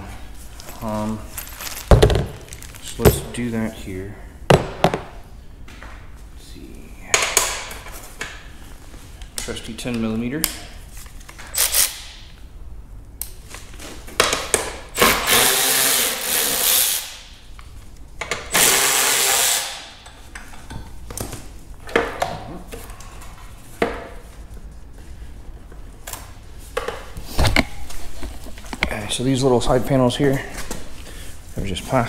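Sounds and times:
power drill spinning: 0:15.0 - 0:17.1, 0:18.6 - 0:19.8.

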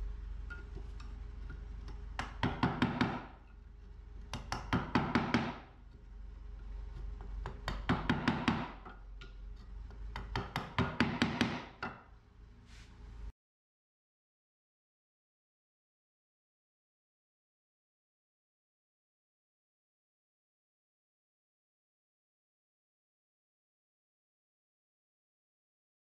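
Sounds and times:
wooden mallet striking a chisel: 0:00.5 - 0:03.6, 0:04.2 - 0:06.0, 0:06.9 - 0:12.1.

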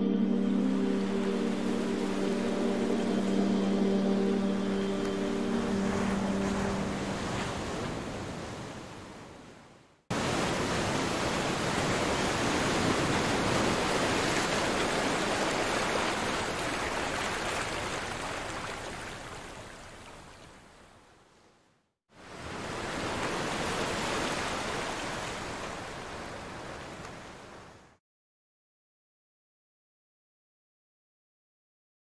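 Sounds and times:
held musical notes: 0:00.0 - 0:07.7
steady rushing noise: 0:00.7 - 0:08.3.

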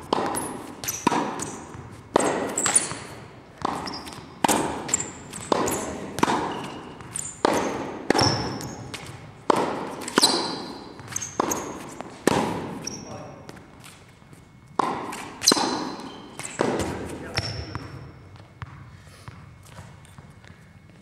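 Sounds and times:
tennis ball struck by racket: 0:00.0 - 0:13.0, 0:14.8 - 0:17.7.

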